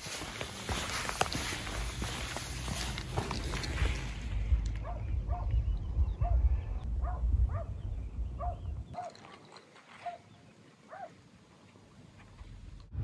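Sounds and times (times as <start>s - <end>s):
low microphone rumble: 1.6s - 9.0s.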